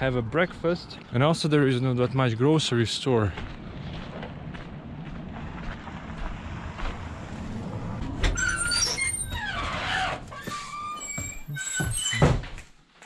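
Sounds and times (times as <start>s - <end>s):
door hinges squealing: 8.1s - 12.6s.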